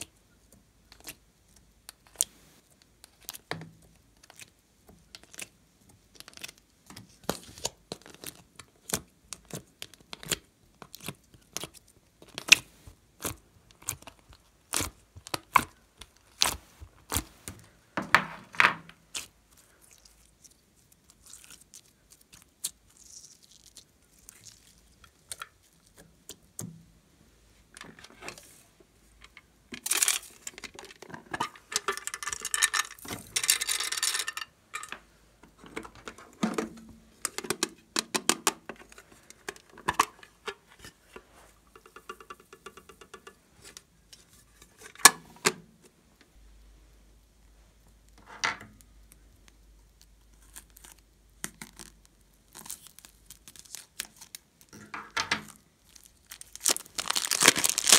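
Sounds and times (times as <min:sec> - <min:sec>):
slime stretching and crackling: 0:07.2 - 0:17.5, 0:19.0 - 0:26.6, 0:48.8 - 0:54.8, 0:55.5 - 0:57.9.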